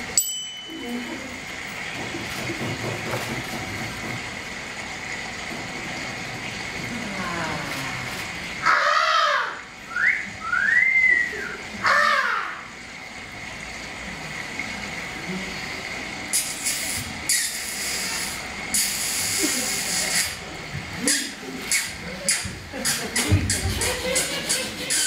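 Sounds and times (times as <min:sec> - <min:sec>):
whistling: 0:09.9 - 0:11.6.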